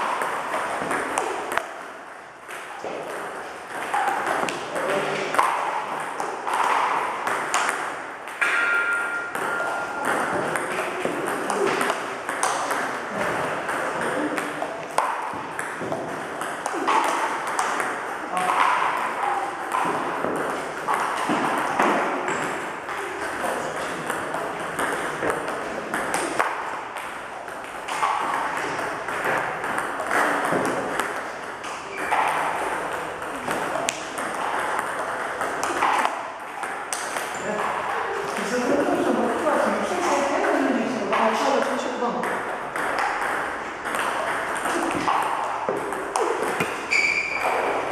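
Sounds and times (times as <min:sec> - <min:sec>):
balls bouncing on table: 0:00.0 - 0:47.9
table tennis balls on paddles: 0:00.0 - 0:47.9
ping pong ball ticks: 0:27.9 - 0:37.7.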